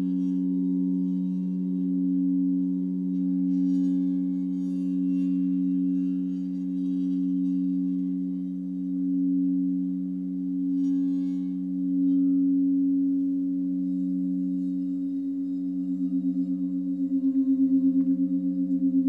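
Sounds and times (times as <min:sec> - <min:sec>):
steady sine-like drone: 0:00.0 - 0:19.0.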